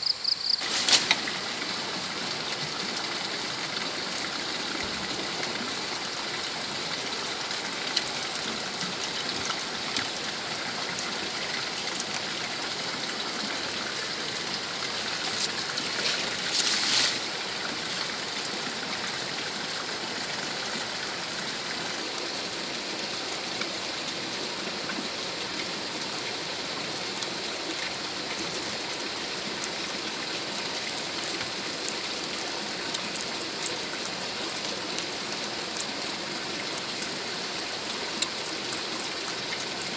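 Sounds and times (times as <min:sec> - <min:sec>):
loud rustle: 0:00.6 - 0:01.3, 0:15.3 - 0:17.3.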